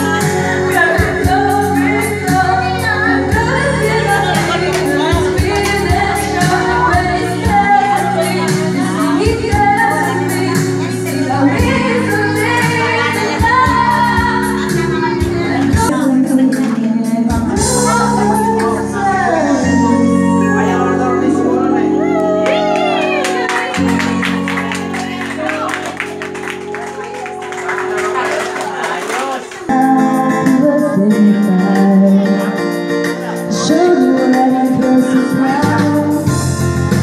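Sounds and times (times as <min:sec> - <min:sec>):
person singing over a beat: 0:00.0 - 0:20.6, 0:29.5 - 0:36.6.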